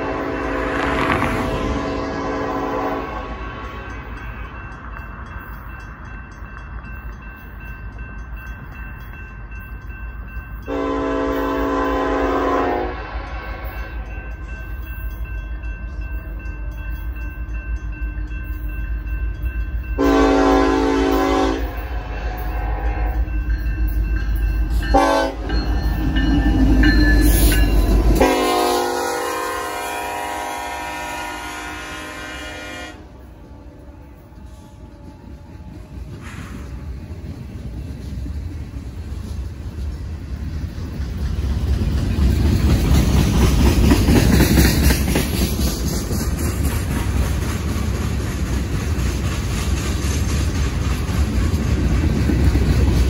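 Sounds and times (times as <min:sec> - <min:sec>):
locomotive horn blasts: 0:00.0 - 0:03.6, 0:10.7 - 0:14.1, 0:20.0 - 0:23.2, 0:24.9 - 0:25.6, 0:28.1 - 0:33.3
crossing bells ringing: 0:00.0 - 0:49.5
train rumble: 0:00.0 - 0:53.0.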